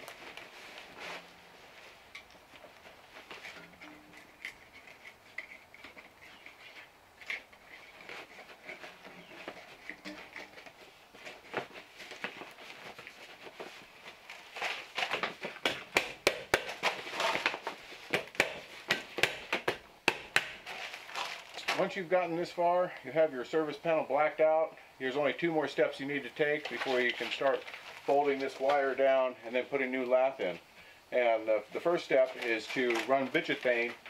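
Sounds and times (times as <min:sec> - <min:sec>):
paper rustling: 0:16.7 - 0:18.9, 0:20.6 - 0:22.0, 0:26.6 - 0:28.9, 0:32.1 - 0:34.0.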